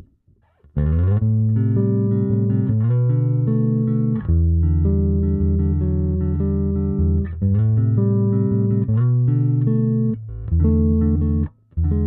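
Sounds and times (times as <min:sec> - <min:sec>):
electric bass held notes: 0:00.0 - 0:12.0.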